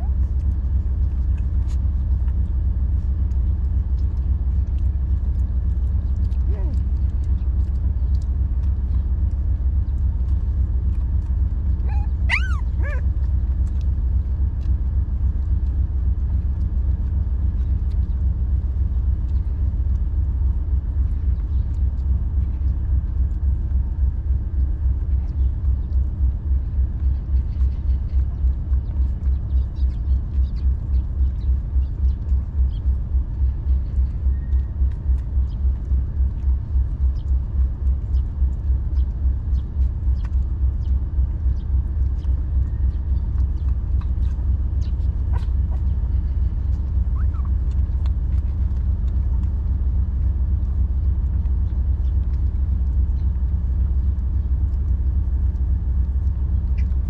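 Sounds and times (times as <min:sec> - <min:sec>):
puppy yelping: 0:00.0 - 0:00.5, 0:06.4 - 0:06.9, 0:11.7 - 0:13.8, 0:44.0 - 0:48.4
low rumble pulsing: 0:00.0 - 0:57.0.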